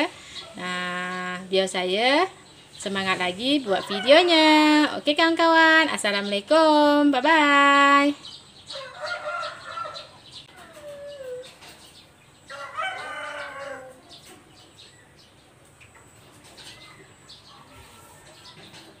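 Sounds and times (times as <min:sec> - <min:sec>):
rooster crowing: 0:08.7 - 0:11.4, 0:12.5 - 0:14.2.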